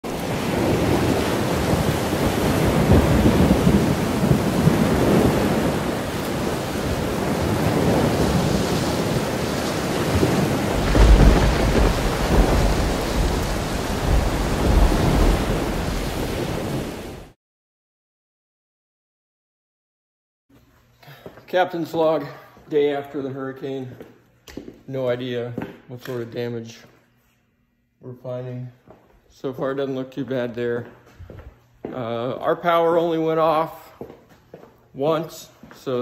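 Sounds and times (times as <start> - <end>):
driving rain: 0.0 - 17.4
hurricane wind gusting: 0.0 - 17.4.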